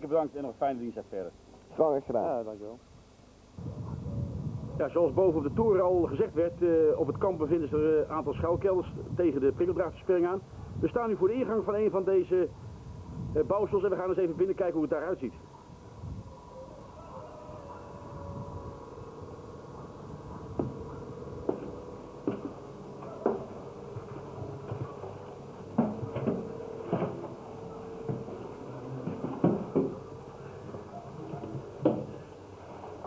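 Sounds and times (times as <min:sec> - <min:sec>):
footsteps on concrete steps: 0:20.5 - 0:27.4
sharp irregular clunks: 0:24.3 - 0:30.2.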